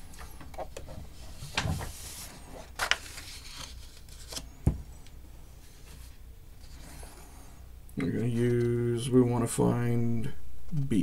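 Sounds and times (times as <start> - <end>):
paper rustling and sliding: 0.2 - 4.6.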